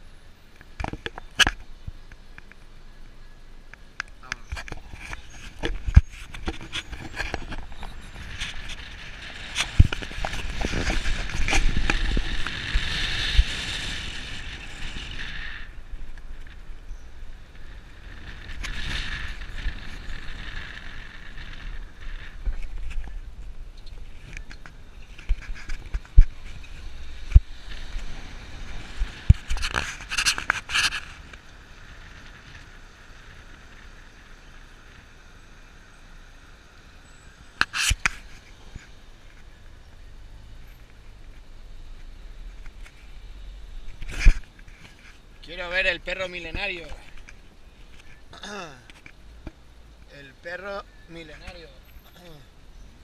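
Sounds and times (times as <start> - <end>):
street traffic hum: 0.0 - 53.0
wind and road hiss: 0.0 - 53.0
scraping and rubbing: 4.3 - 16.7, 18.2 - 31.4, 37.6 - 39.5.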